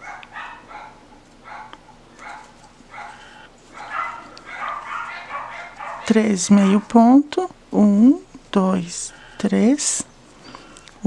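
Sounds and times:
dog yapping barks: 0.0 - 6.9.

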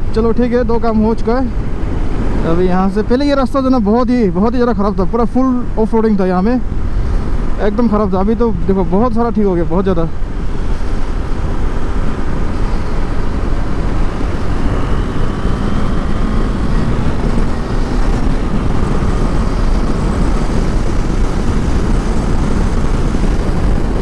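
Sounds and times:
wind rushing: 0.0 - 24.0
motorcycle engine running: 10.1 - 24.0.

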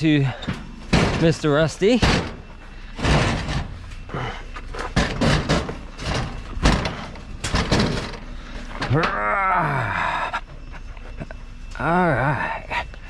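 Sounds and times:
metal bangs: 0.0 - 4.1, 4.8 - 9.1
scrap metal clanking: 0.3 - 9.1.

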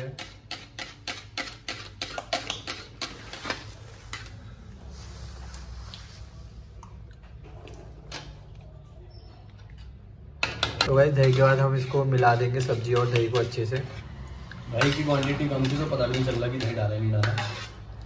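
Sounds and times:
metal spoon scraping plastic cup: 0.0 - 4.3, 10.8 - 18.0.

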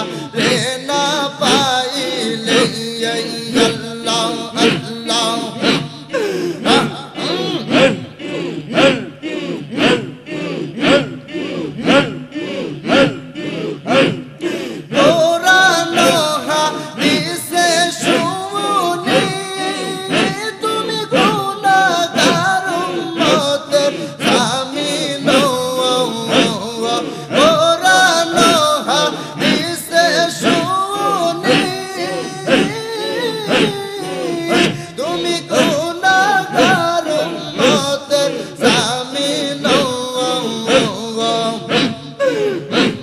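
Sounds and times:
men singing and chanting: 0.0 - 43.0.

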